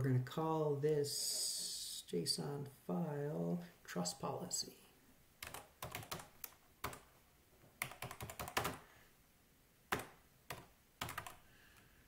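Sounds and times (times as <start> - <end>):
computer keyboard typing: 5.4 - 7.1, 7.8 - 8.8, 9.9 - 11.4.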